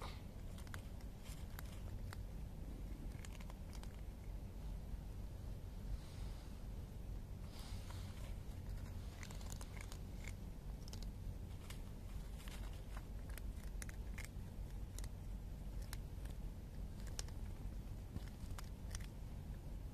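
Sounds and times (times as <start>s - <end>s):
cats crunching dry kibble: 0.4s - 4.4s, 7.6s - 19.3s.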